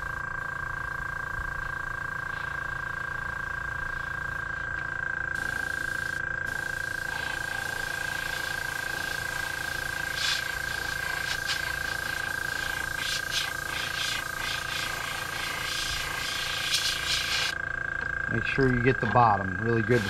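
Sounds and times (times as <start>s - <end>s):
motor whine: 0.0s - 20.0s
airbrush spraying hiss: 5.4s - 17.6s.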